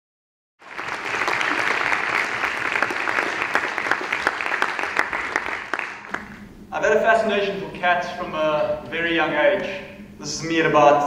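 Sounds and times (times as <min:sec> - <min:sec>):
audience applauding: 0:00.6 - 0:06.4.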